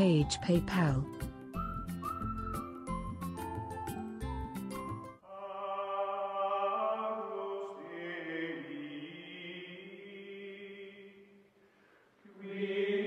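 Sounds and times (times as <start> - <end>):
choral chanting: 5.3 - 11.4, 12.3 - 13.0.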